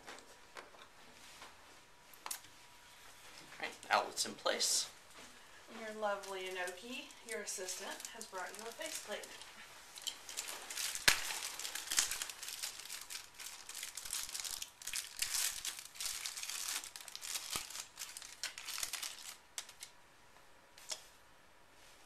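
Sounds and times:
plastic packaging crinkling and tearing: 6.1s - 20.0s.

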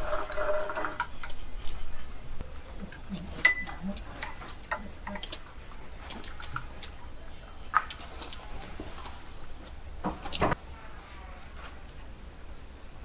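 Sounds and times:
chewing and mouth sounds: 2.6s - 9.5s.

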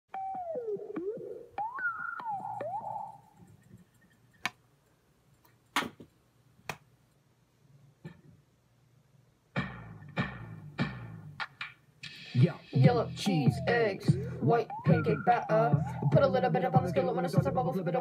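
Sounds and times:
sliding pitched tone: 0.1s - 3.4s, 12.1s - 17.8s
hand tapping recording device: 1.0s - 4.6s.

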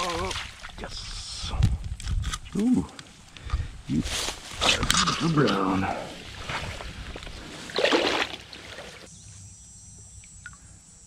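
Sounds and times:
water splashing around fish: 0.0s - 0.9s, 6.2s - 9.1s.

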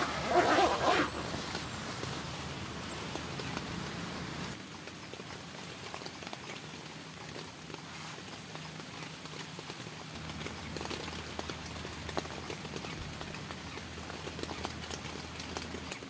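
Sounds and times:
low steady hum: 0.0s - 4.8s
rain drops tapping on tent: 0.0s - 16.0s.

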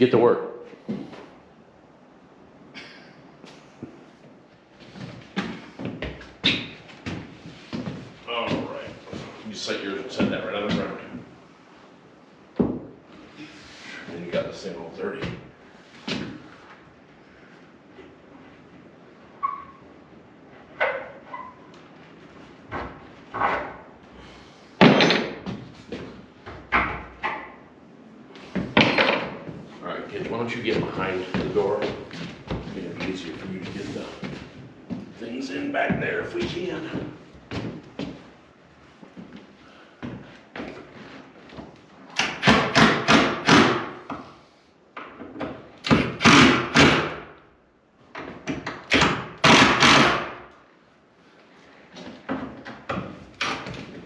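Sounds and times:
wooden knocks and bangs: 12.6s - 13.0s, 24.8s - 27.6s, 28.6s - 29.6s.

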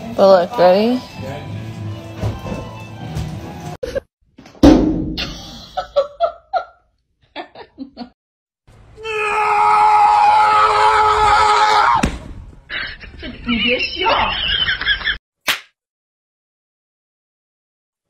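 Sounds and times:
sharp thump: 4.5s - 5.4s, 12.0s - 12.4s
high-pitched scream: 9.0s - 12.0s.

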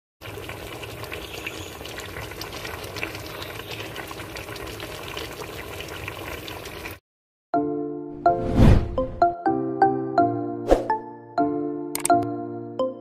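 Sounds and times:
thick sauce bubbling in a pot: 0.2s - 7.0s.

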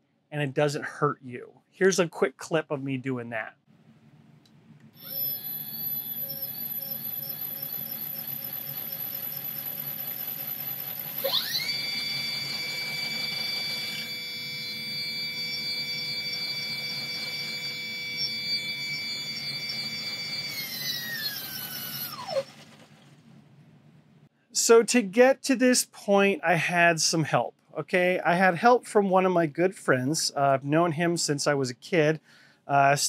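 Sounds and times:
electric motor whining: 5.0s - 22.4s.

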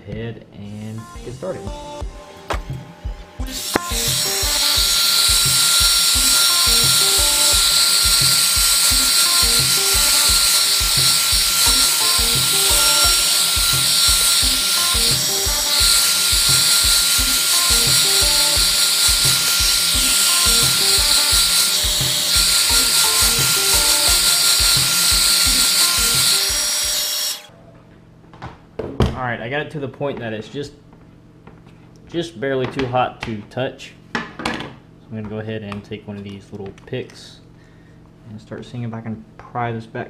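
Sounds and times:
background music with beat: 0.9s - 27.1s
hot-air blower hissing: 1.2s - 27.5s.

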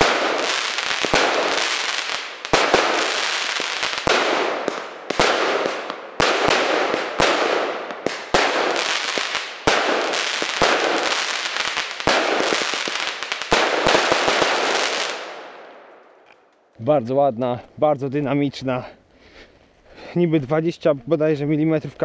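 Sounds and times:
firework crackling: 0.0s - 15.4s
firework bangs: 0.0s - 15.9s.

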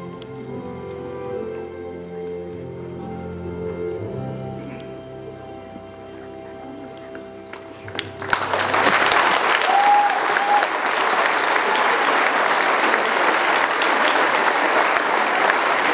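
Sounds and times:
audience applause: 7.5s - 15.9s.

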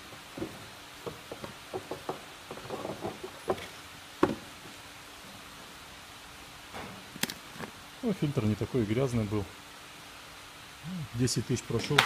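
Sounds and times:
plastic knocks and taps: 0.4s - 4.4s.

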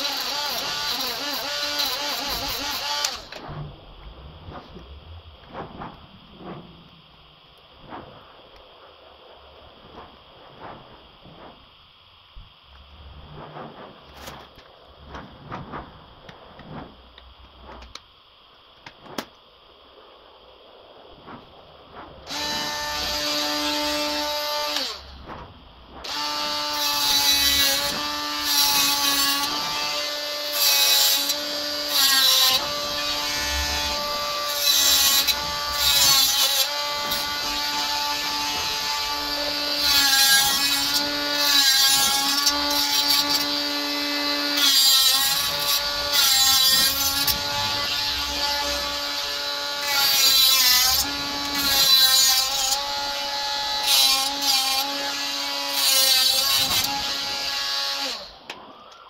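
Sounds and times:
drill cutting mesh grille: 0.0s - 3.6s, 22.3s - 25.3s, 26.0s - 58.4s.

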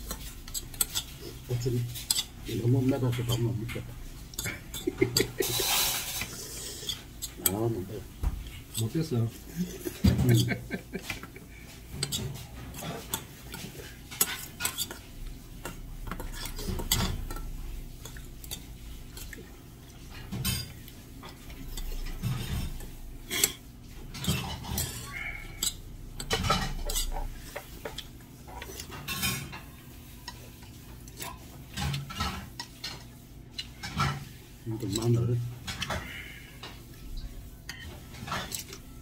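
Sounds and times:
utensils clinking on metal bowl: 0.0s - 19.4s, 20.0s - 36.8s, 37.6s - 39.0s
chewing: 24.7s - 29.1s, 33.5s - 33.8s.

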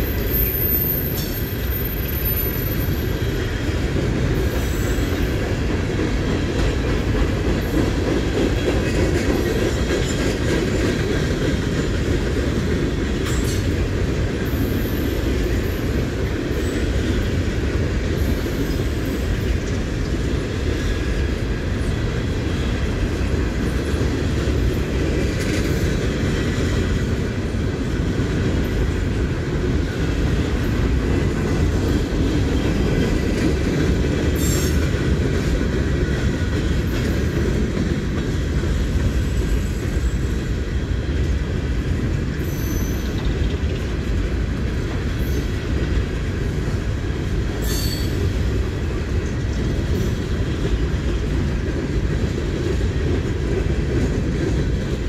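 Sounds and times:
steel wheels rumbling on rail: 0.0s - 55.0s
wheel squeal: 42.4s - 43.3s, 47.6s - 48.2s.

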